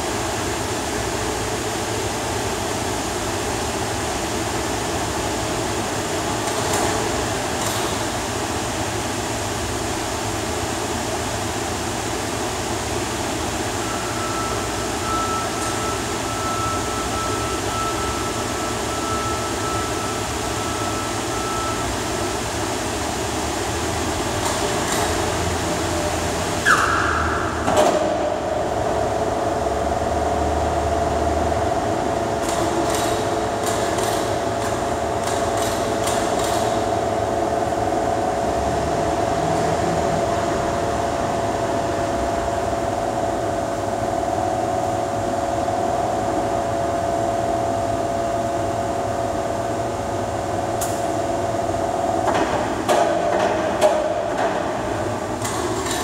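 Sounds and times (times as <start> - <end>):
machinery hum: 0.0 - 56.0.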